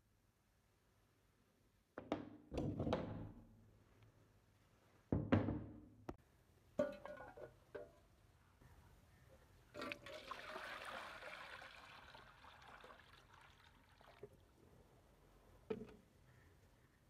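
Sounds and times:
water pouring into enamel basin: 9.8 - 14.5.

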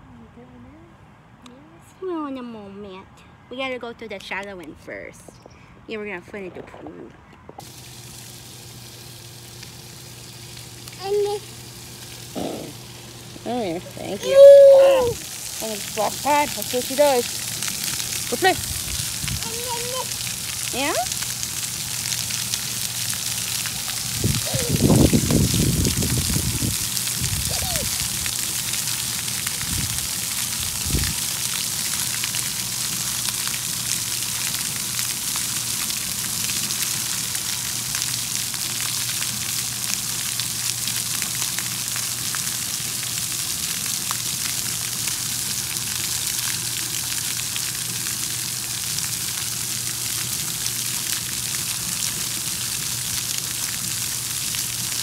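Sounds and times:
spray pattering on wet concrete: 7.6 - 55.0
water jets hissing: 7.6 - 55.0.

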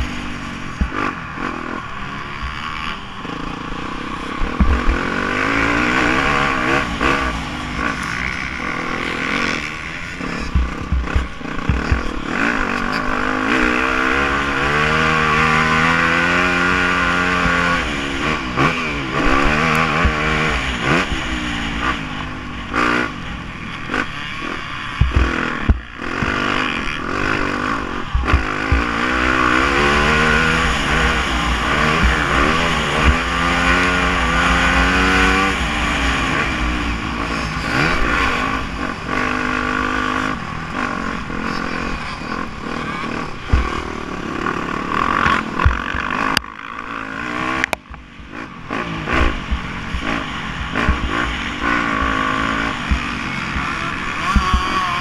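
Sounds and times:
motocross engine revving: 0.0 - 55.0
bike knocking over rough track: 25.0 - 26.4.

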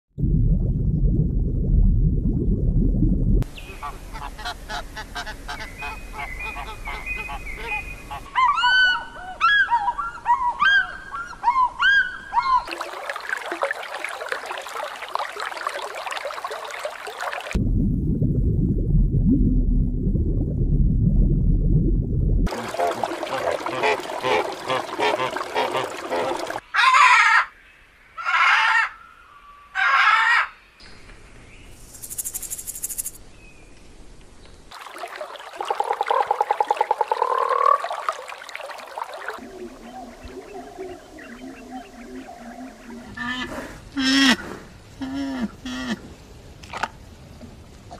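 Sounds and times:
water sounds: 0.2 - 8.4, 12.4 - 26.6, 34.7 - 47.9
frog croaking: 35.9 - 38.1, 39.4 - 44.4.

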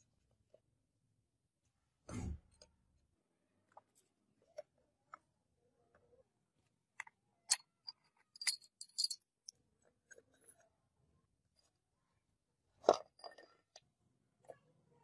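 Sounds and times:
small hard objects clinking: 7.5 - 10.6.

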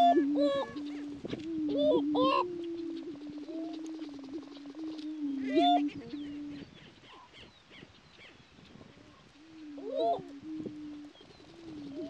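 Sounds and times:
low hooting moans: 0.0 - 6.6.

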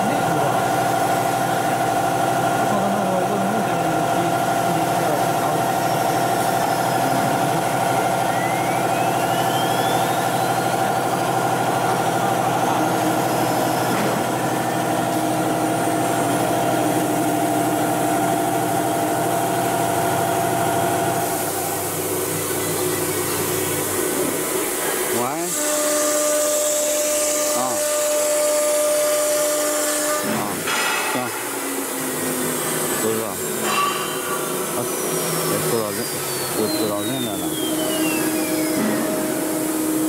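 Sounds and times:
cnc router humming: 0.0 - 40.0
router bit cutting wood: 24.1 - 40.0.

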